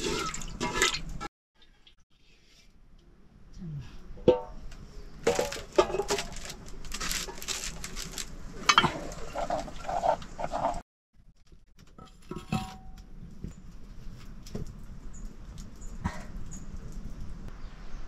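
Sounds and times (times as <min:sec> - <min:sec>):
pot being stirred with scraping: 0:08.6 - 0:10.8
metal cookware clinking and knocking: 0:12.0 - 0:13.0.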